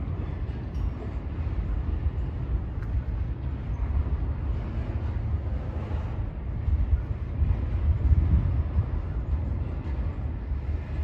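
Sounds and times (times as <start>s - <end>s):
freight train wheels rumbling on rails: 0.0s - 11.0s.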